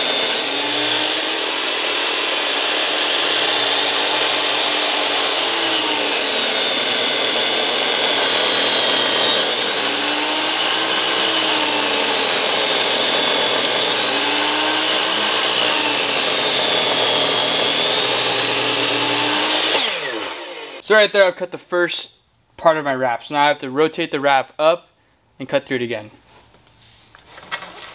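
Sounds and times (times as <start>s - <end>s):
miter saw motor whine: 0.0s - 20.8s.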